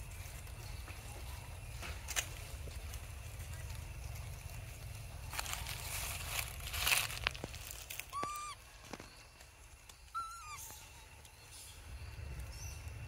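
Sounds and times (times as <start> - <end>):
monkey coo calls: 8.0 - 8.6, 10.1 - 11.0.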